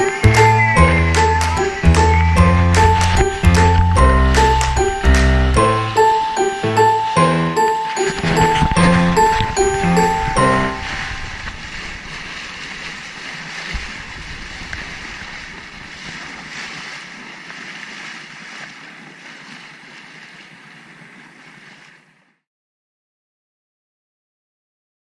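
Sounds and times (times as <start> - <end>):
sea water rushing beside boat: 0.0 - 22.4
wind on microphone: 1.6 - 6.4, 8.0 - 22.3.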